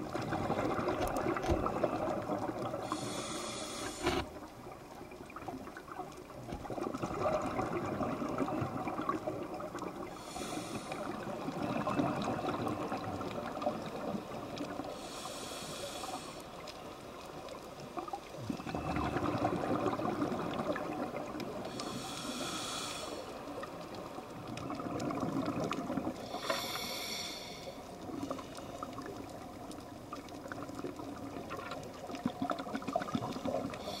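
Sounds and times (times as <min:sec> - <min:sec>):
gurgle of exhaled bubbles: 0:00.0 - 0:03.0, 0:05.2 - 0:10.1, 0:10.9 - 0:14.9, 0:18.0 - 0:22.0, 0:24.4 - 0:26.4, 0:28.1 - 0:33.9
hissing regulator inhales: 0:02.8 - 0:04.3, 0:10.1 - 0:11.2, 0:14.9 - 0:16.5, 0:21.6 - 0:23.4, 0:26.2 - 0:27.9, 0:33.8 - 0:34.0.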